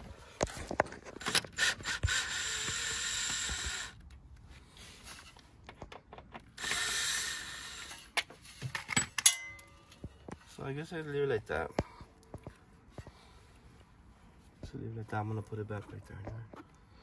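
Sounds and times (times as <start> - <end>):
cordless drill running: 1.2 - 4.0, 6.6 - 8.1.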